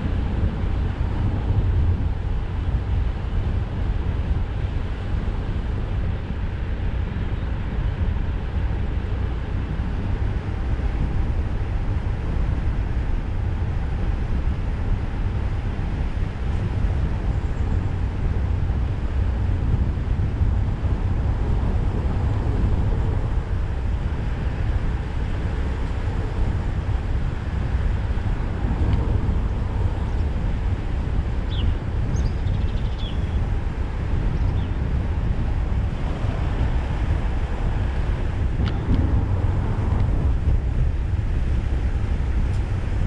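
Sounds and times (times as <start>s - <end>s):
car engine and road noise: 0.0s - 43.0s
wind on microphone: 0.0s - 43.0s.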